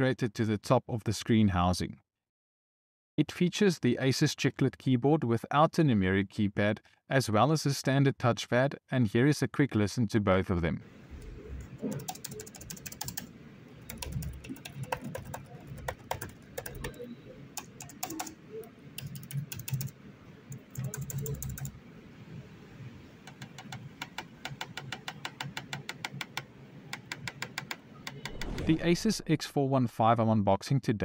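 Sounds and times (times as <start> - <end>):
laptop keyboard typing: 11.2 - 21.8, 23.2 - 28.5
touchpad clicks: 11.8 - 19.9, 20.5 - 21.7, 23.3 - 28.4.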